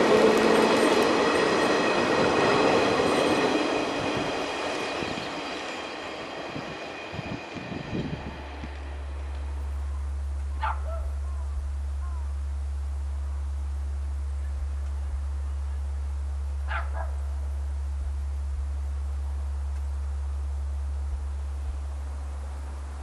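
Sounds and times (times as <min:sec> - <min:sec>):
loud steady low hum: 0:06.5 - 0:23.0
dog barking: 0:10.6 - 0:11.2, 0:16.7 - 0:17.2.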